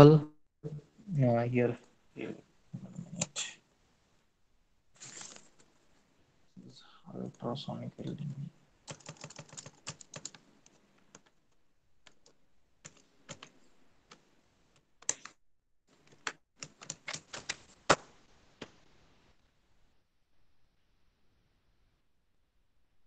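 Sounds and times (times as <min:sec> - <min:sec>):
typing on a computer keyboard: 0:08.8 - 0:11.4, 0:12.0 - 0:13.5, 0:16.0 - 0:17.6.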